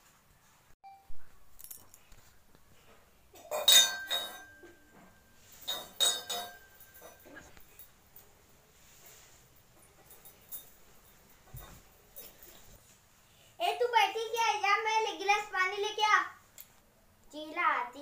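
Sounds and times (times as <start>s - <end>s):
clinking with brief ring: 0.9s - 2.1s, 3.5s - 8.3s.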